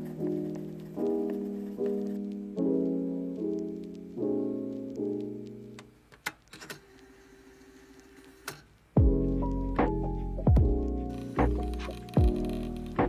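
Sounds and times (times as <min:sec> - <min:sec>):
soft piano chords: 0:00.0 - 0:06.1, 0:09.0 - 0:13.0.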